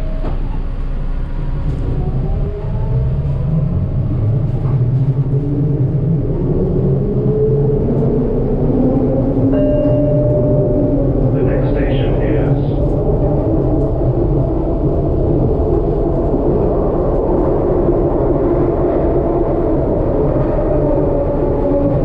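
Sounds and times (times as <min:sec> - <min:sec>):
train car rumble: 0:00.0 - 0:22.0
steady higher tone: 0:09.4 - 0:12.8.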